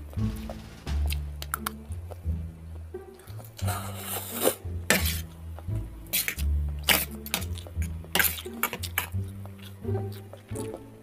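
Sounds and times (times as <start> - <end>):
background music with bass line: 0.0 - 11.0
forks clinking and scraping on plate: 6.1 - 7.6, 8.2 - 9.1.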